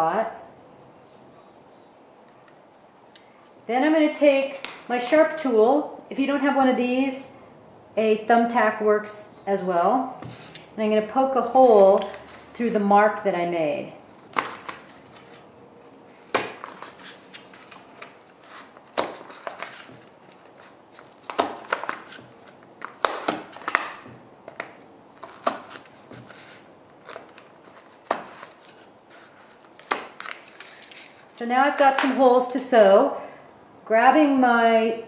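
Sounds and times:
awl punching through paper: 0:11.4 - 0:13.2, 0:13.9 - 0:31.3.

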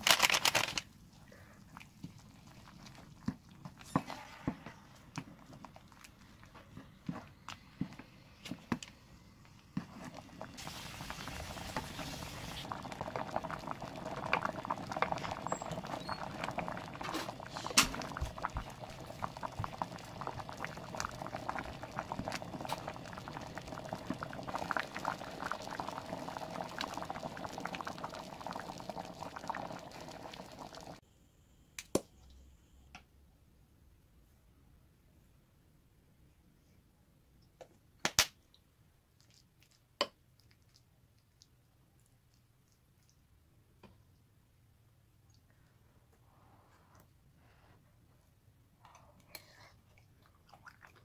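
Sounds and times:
curry boiling and bubbling: 0:00.1 - 0:31.0, 0:49.3 - 0:51.0.

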